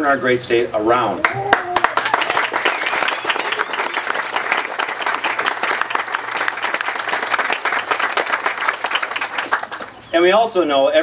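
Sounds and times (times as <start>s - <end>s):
crowd applauding: 1.2s - 10.0s.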